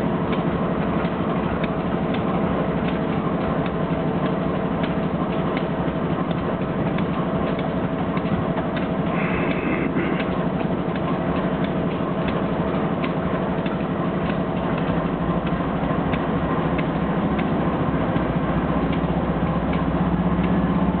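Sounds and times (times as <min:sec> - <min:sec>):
diesel locomotive engine humming: 0:00.0 - 0:21.0.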